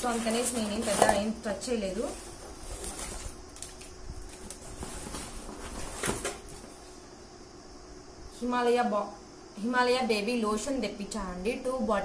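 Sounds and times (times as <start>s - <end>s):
packaging rustling: 0.0s - 7.0s.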